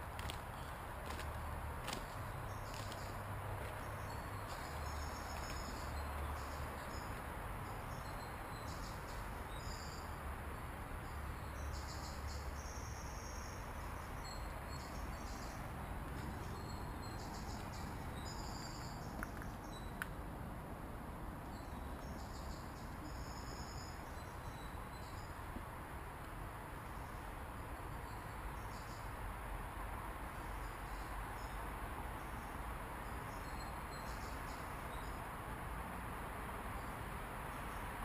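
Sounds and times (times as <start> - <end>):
steady background hiss: 0.0 - 38.0
insects chirping: 0.2 - 20.0, 21.5 - 25.4.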